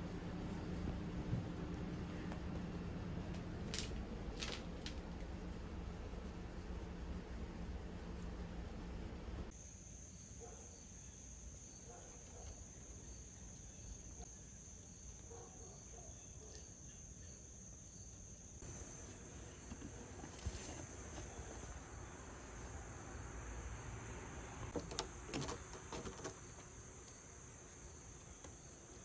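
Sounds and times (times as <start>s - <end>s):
high-pitched insect chorus: 9.5s - 29.0s.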